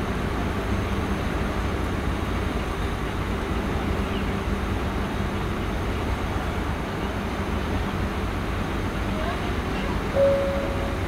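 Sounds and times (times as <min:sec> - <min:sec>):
ship diesel engines droning: 0:00.0 - 0:11.0.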